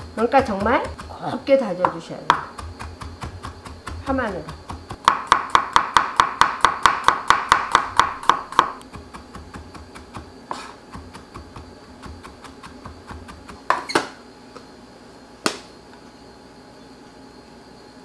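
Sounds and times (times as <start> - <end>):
knife chopping on wooden board: 0.0 - 14.1.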